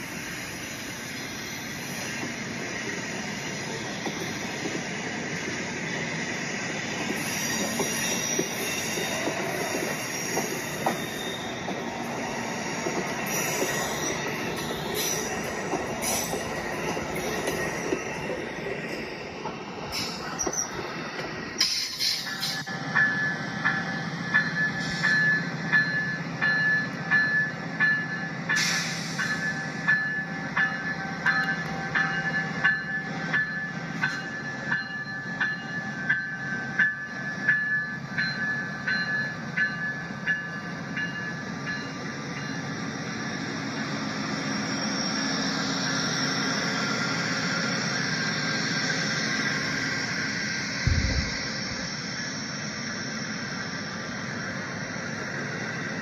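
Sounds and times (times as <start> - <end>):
train motor whine: 41.0 - 56.0.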